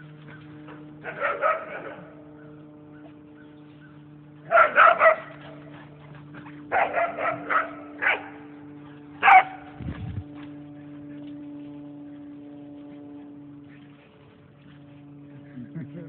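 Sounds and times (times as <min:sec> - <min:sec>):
low hum: 0:00.0 - 0:16.0
dogs barking: 0:00.3 - 0:03.5, 0:04.4 - 0:09.8.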